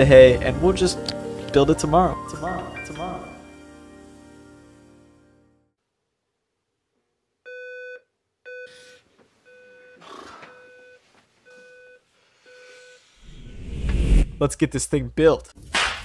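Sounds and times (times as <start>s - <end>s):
rising rush of sound: 13.2s - 14.4s.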